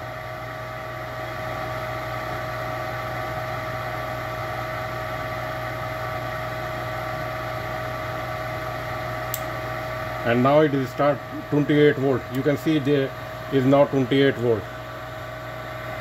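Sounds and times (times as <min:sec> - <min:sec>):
furnace motor humming: 0:00.0 - 0:16.0.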